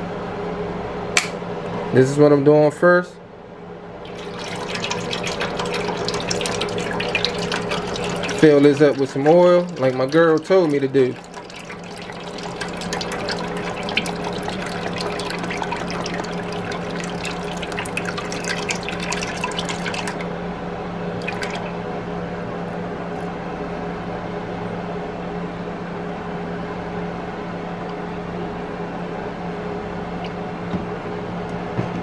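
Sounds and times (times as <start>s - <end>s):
electric fan hum: 0.0s - 32.0s
oil pouring and splashing: 4.0s - 20.4s, 21.2s - 21.8s.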